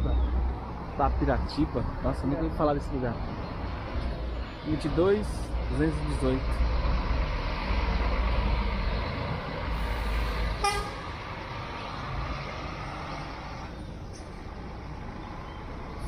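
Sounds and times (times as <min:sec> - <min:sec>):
bus diesel engine rumbling: 0:00.0 - 0:16.0
steady traffic noise: 0:00.0 - 0:16.0
short horn toot: 0:10.6 - 0:11.1.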